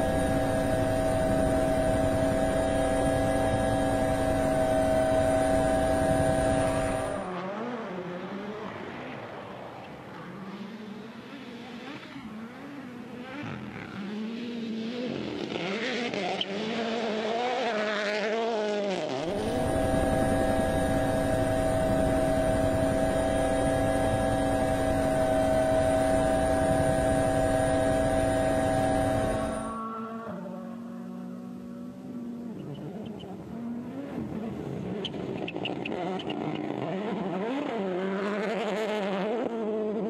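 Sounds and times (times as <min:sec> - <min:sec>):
steady drone: 0:00.0 - 0:07.6, 0:19.2 - 0:32.4
rally car engine revving: 0:10.1 - 0:40.0
dense rushing noise: 0:19.3 - 0:29.8.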